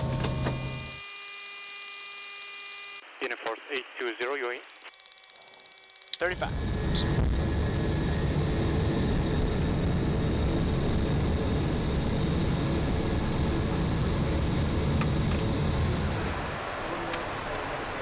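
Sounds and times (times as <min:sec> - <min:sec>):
faint high whine: 0:00.0 - 0:18.0
jet engine low rumble: 0:06.3 - 0:18.0.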